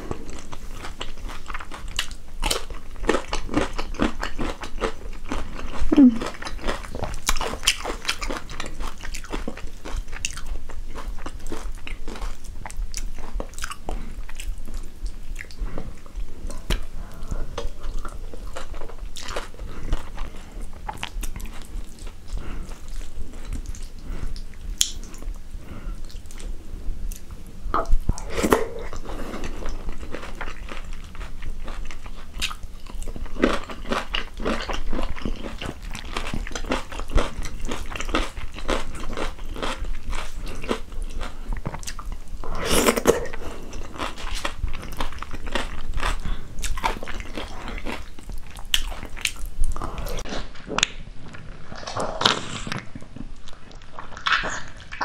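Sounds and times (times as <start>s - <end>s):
person chewing food: 0.0s - 55.0s
wet mouth clicks: 24.4s - 25.2s.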